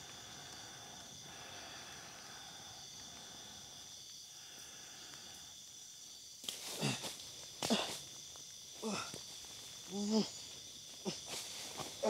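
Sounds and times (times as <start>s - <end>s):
crickets and insects trilling: 0.0s - 12.0s
man groaning: 9.9s - 10.4s.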